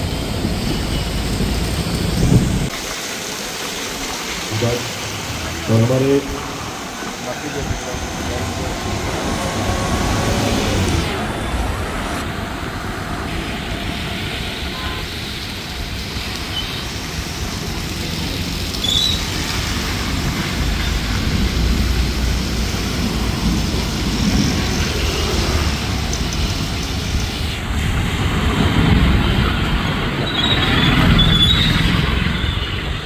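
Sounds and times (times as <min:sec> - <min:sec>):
road traffic noise: 0:00.0 - 0:33.0
tyres hissing on wet road: 0:00.0 - 0:33.0.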